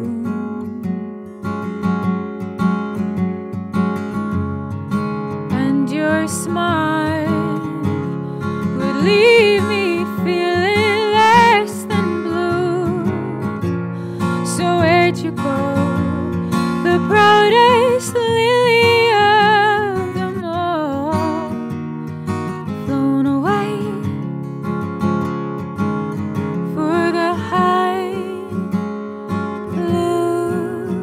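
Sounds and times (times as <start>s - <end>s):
woman singing a slow ballad: 0.0s - 1.1s, 5.5s - 21.6s, 22.7s - 24.2s, 26.6s - 28.8s, 29.6s - 31.0s
acoustic guitar: 0.0s - 31.0s.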